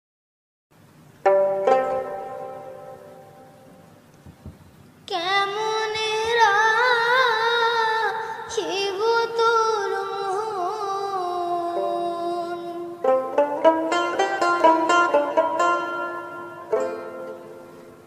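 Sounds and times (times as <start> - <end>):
melody of wavering held notes: 1.2 - 4.0
quick plucked string notes: 1.2 - 4.5, 12.8 - 18.0.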